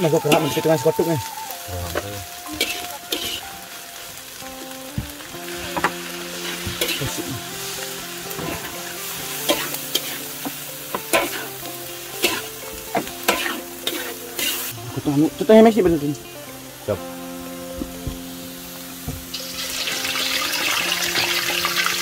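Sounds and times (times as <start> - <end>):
steady sizzle: 0.0 - 22.0
spatula scraping a wok: 2.5 - 3.4, 5.5 - 11.6, 12.2 - 14.7.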